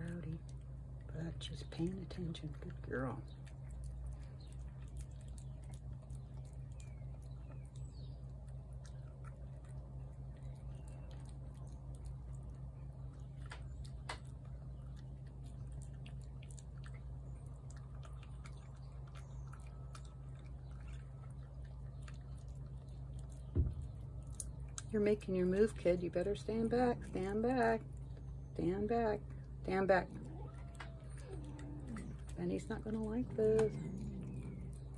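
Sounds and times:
cat chewing food: 0.0 - 28.6, 29.2 - 34.9
low hum: 0.0 - 34.9.

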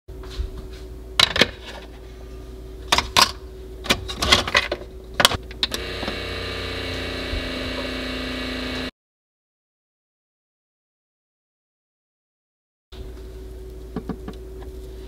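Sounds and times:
coffee machine humming: 5.6 - 8.9.

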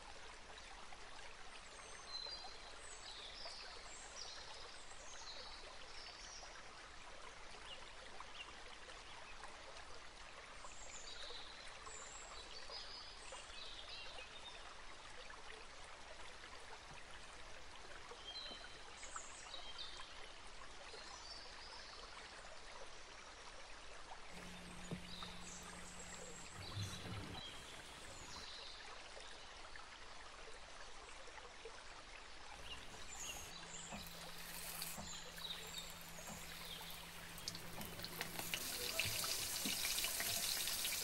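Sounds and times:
flowing stream water: 0.0 - 41.0.

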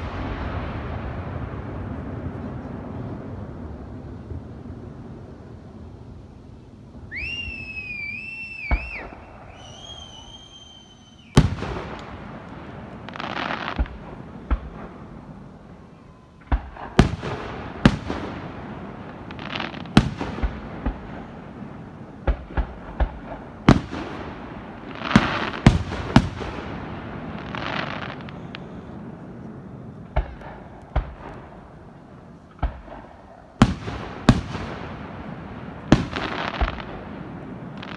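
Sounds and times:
firework crackling: 0.0 - 37.9
high wavering firework whistles: 7.0 - 14.0, 24.8 - 26.4, 27.3 - 29.2.

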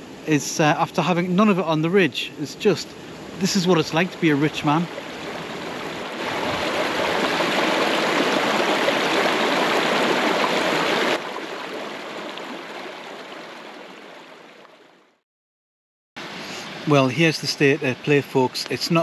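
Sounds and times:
stream running over rocks: 0.2 - 14.9.

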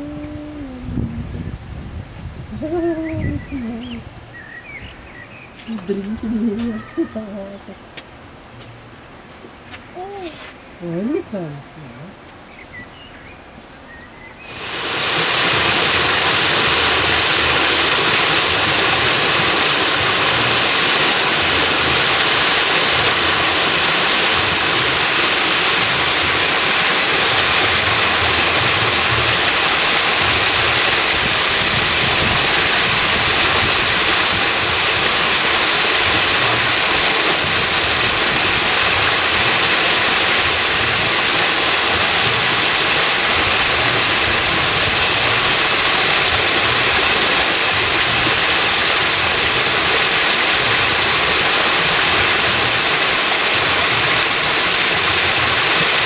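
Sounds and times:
waterfall pouring over rocks: 9.7 - 11.5, 14.4 - 56.0.

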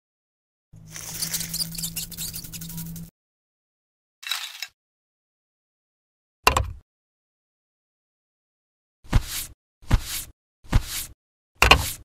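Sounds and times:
dry scratchy rustling: 0.8 - 3.1.

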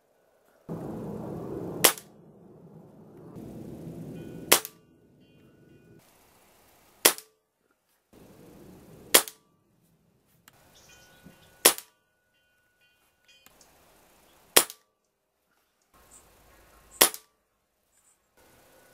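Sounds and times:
air rifle shots: 0.7 - 5.2, 7.0 - 7.3, 8.5 - 9.4, 17.0 - 17.2.

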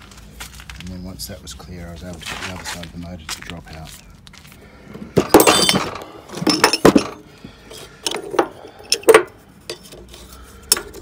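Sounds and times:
metal parts clinking and rattling: 5.2 - 11.0.

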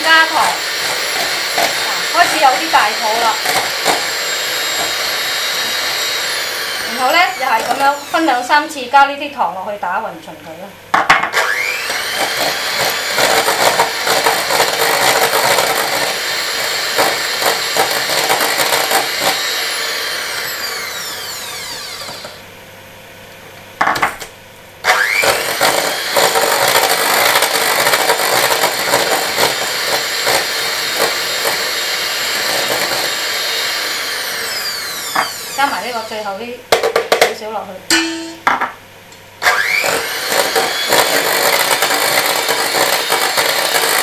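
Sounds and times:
electric hand mixer whipping: 0.0 - 8.8, 11.2 - 22.4, 24.8 - 36.4, 39.4 - 44.0.

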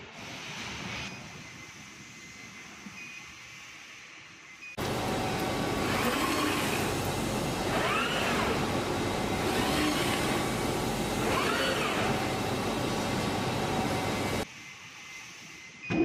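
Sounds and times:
drive motors whining: 4.8 - 14.4
rushing machine noise: 4.8 - 15.3.

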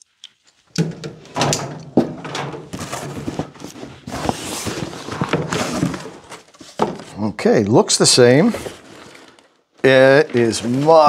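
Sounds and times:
cardboard rustling: 2.0 - 7.2, 8.3 - 11.0.

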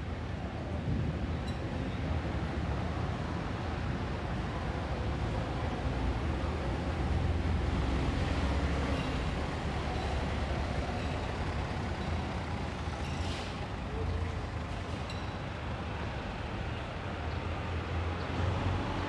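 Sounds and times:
traffic rumble: 0.0 - 19.0.

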